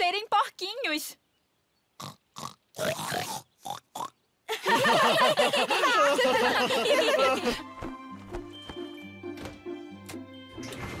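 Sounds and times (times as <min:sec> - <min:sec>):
cartoon pig oinks and snorts: 0:02.0 - 0:04.2
music: 0:05.9 - 0:11.0.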